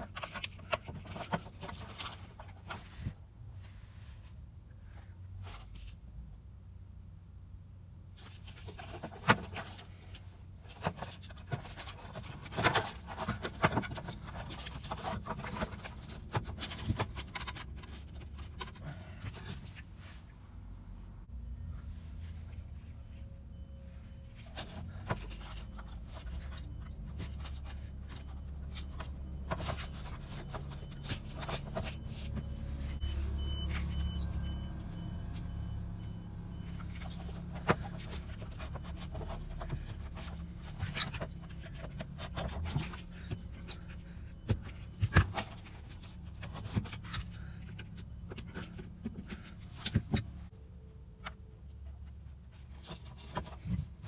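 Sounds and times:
clicks and scrapes of wire connectors: 8.2s - 19.8s.

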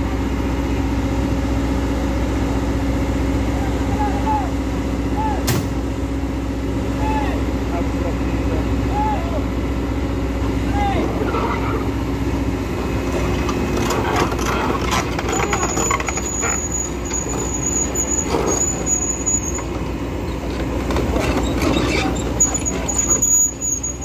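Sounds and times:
truck engine running: 0.0s - 24.0s
high-pitched squeal: 14.4s - 19.8s, 21.3s - 24.0s.

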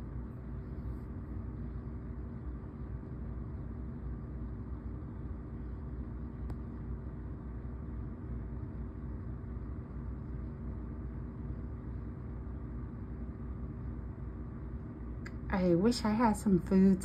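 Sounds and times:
low hum and rumble: 0.0s - 17.0s.

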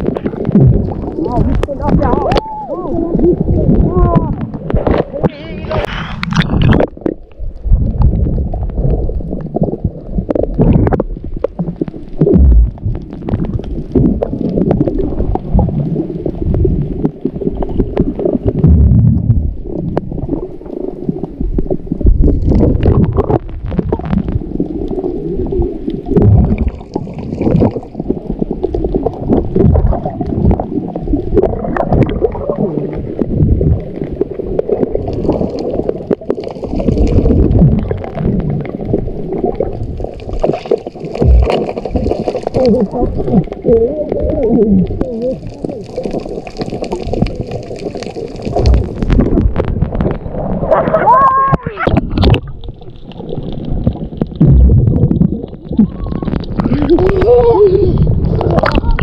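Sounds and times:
muffled water gurgling: 0.0s - 59.0s
sharp splashes or knocks: 40.3s - 42.7s.

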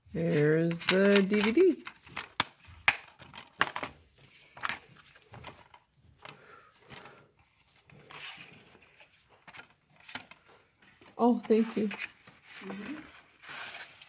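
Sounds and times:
soft rustle: 6.8s - 14.0s.

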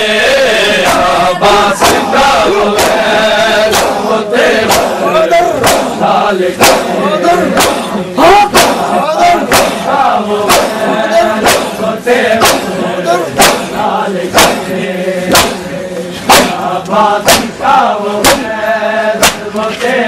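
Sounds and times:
crowd slapping chests in unison: 0.0s - 20.0s
group of men chanting: 0.0s - 20.0s.

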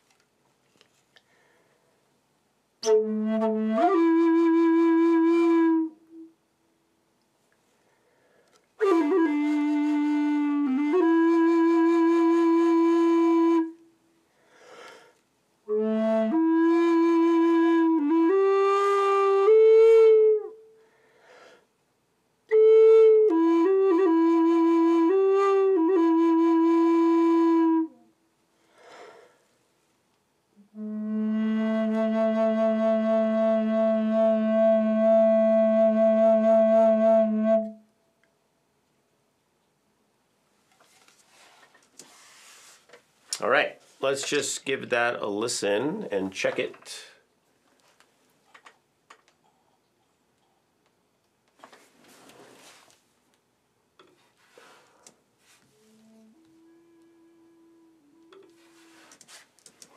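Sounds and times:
wooden flute melody: 2.8s - 6.4s, 8.8s - 14.0s, 15.6s - 20.8s, 22.5s - 28.2s, 30.6s - 38.2s, 55.4s - 59.9s
player breathing: 14.3s - 15.2s, 28.6s - 29.5s, 54.4s - 55.2s.

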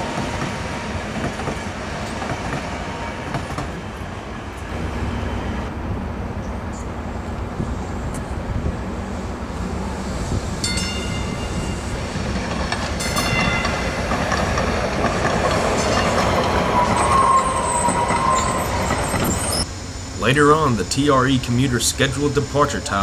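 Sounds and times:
train wheels rumbling over track: 0.0s - 19.8s
train wheels squealing: 15.7s - 19.7s.

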